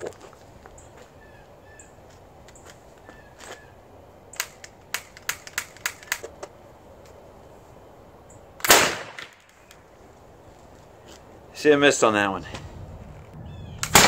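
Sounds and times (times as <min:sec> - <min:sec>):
sharp clicks: 0:04.3 - 0:07.2.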